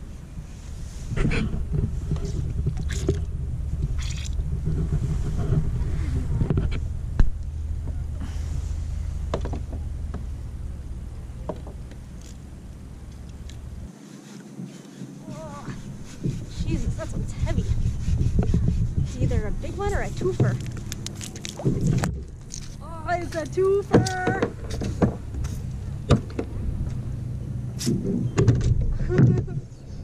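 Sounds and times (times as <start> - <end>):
low rumble on water: 0.0 - 13.9, 15.2 - 30.0
water splashing: 1.2 - 8.0, 19.2 - 26.7.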